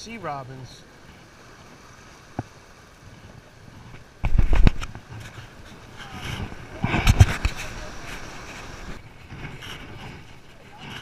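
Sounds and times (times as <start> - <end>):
low rumbling thumps and crackle: 2.4 - 11.0.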